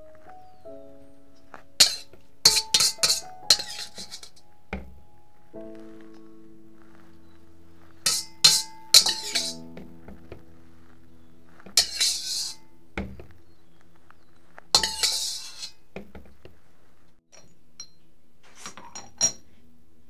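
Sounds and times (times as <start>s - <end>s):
ceramic spoon clinking on jar: 1.8s - 4.3s, 8.0s - 9.6s
metal spatula scraping wok: 1.8s - 4.4s, 8.0s - 9.8s, 11.6s - 12.7s, 14.7s - 15.8s.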